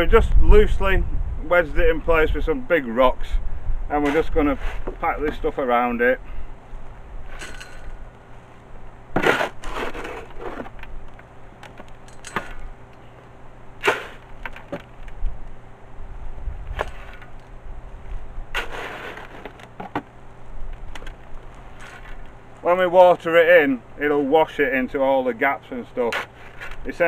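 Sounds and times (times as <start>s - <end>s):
shovel knocking: 3.9s - 5.4s
shovel scraping concrete in wheelbarrow: 3.9s - 5.5s, 9.1s - 10.8s, 13.8s - 14.3s, 16.7s - 17.3s, 18.5s - 20.0s, 26.0s - 27.0s.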